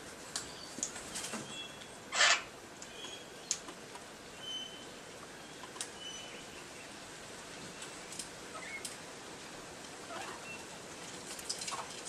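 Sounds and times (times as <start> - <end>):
birds chirping and whistling: 0.4 - 3.6, 4.4 - 7.0, 8.5 - 8.9, 10.1 - 10.7.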